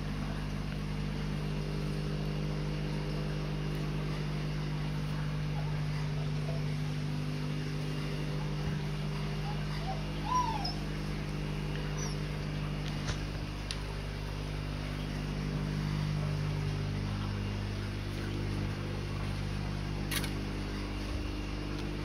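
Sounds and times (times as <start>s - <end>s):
low machine hum: 0.0s - 22.0s
puppy whimpering: 9.3s - 11.0s, 11.9s - 12.3s.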